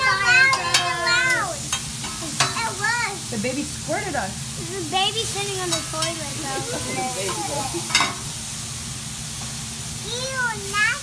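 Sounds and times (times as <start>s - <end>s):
children calling out: 0.0s - 3.3s, 4.6s - 8.1s, 10.0s - 11.0s
food sizzling on a griddle: 0.0s - 11.0s.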